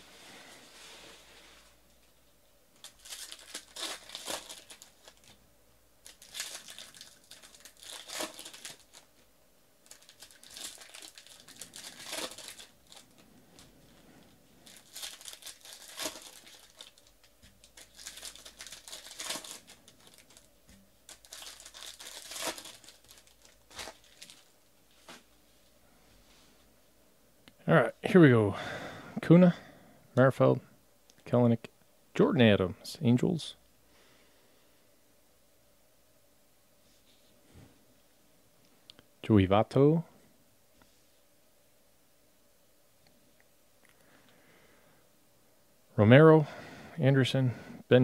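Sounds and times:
wrappers tearing and crinkling: 2.8s - 5.4s, 6.0s - 9.2s, 9.8s - 25.2s.

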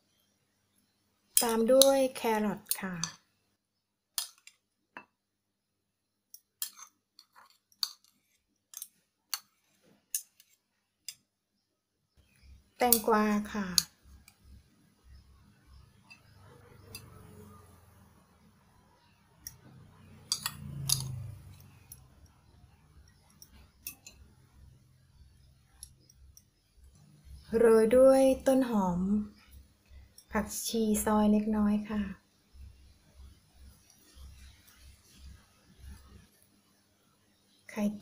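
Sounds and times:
metal tongs clicking against bowl: 12.9s - 13.1s, 20.2s - 21.2s.

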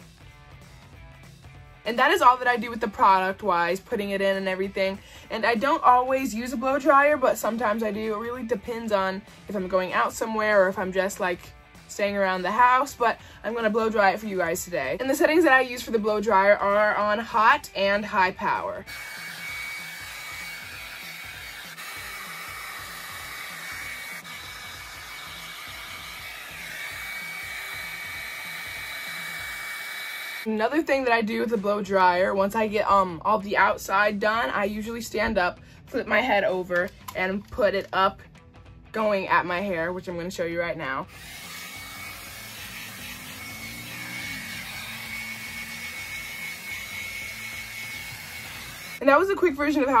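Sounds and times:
hair dryer running: 16.7s - 30.5s, 41.1s - 49.2s.

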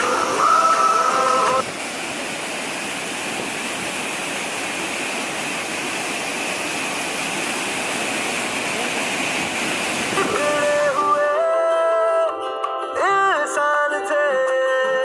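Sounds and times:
waterfall rushing: 0.0s - 11.4s.

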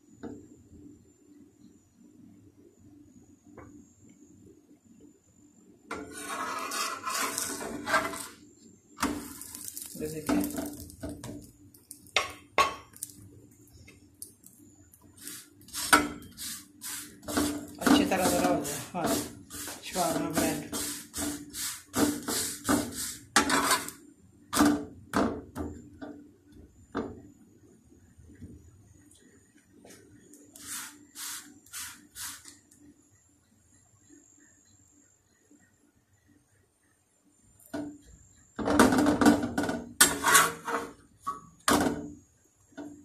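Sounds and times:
metal spatula scraping iron griddle: 5.9s - 8.4s, 15.2s - 24.0s, 40.0s - 41.0s.

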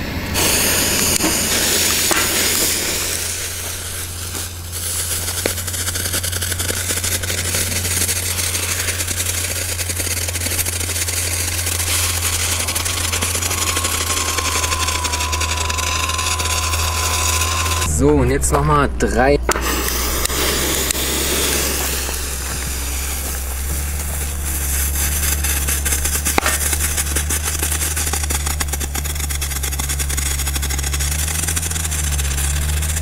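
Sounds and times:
strobe fireworks crackling: 0.0s - 18.0s, 19.5s - 33.0s.

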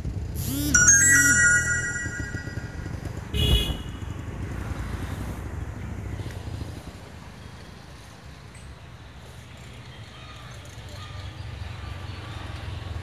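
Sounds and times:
steady high tones: 0.4s - 3.2s.

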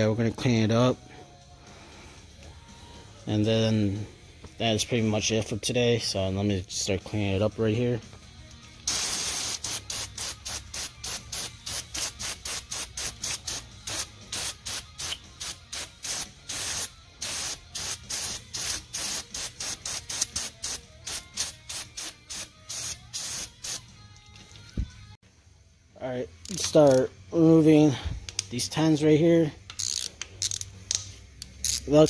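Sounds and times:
spray bottle hissing bursts: 8.8s - 23.8s.

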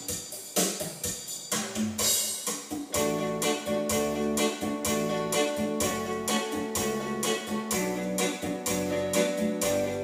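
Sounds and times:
steady beat: 0.0s - 10.0s
electronic keyboard chords: 2.6s - 10.0s.

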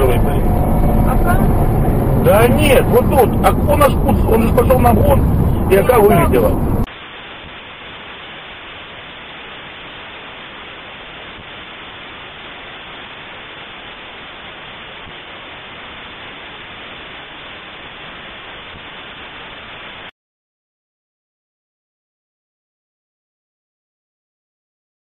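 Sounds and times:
static hiss: 0.0s - 20.1s.

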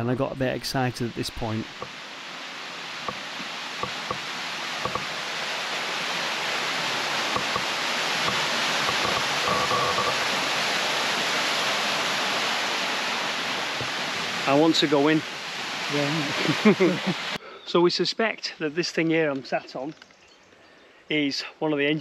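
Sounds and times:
running water rushing: 0.0s - 17.4s.

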